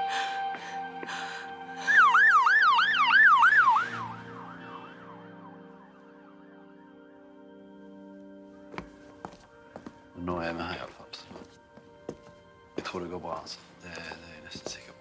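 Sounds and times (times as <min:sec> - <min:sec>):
emergency siren yelping: 0:01.8 - 0:06.1.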